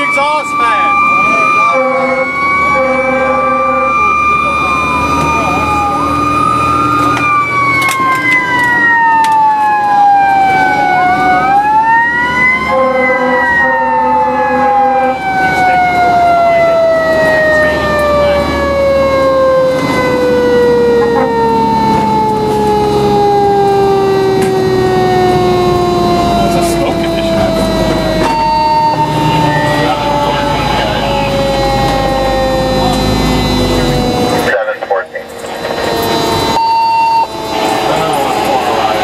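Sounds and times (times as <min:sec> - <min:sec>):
mechanical siren wailing: 0:00.0 - 0:39.0
truck engine rumbling: 0:00.0 - 0:39.0
truck horn blast: 0:01.6 - 0:04.0, 0:12.7 - 0:15.2, 0:21.0 - 0:21.5.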